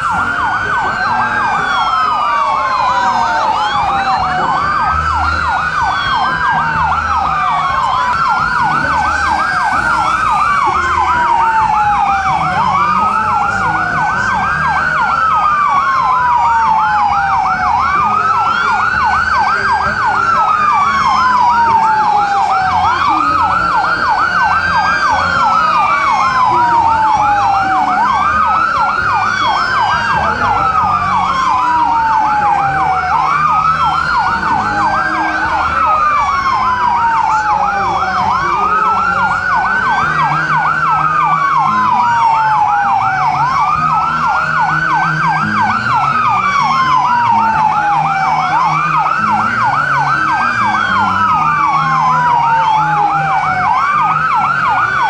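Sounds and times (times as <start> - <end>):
siren wailing: 0.0 - 55.0
siren yelping: 0.0 - 55.0.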